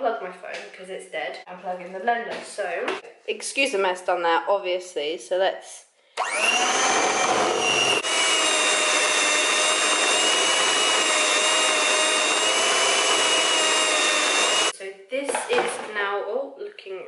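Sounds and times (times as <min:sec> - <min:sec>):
electric mixer whining: 0:06.2 - 0:14.8.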